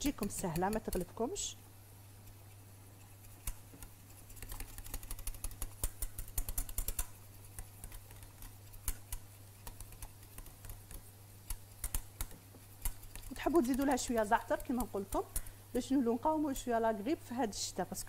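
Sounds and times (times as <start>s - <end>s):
whisk clicking against saucepan: 0.0s - 1.3s, 3.1s - 15.5s
low steady hum: 0.0s - 18.0s.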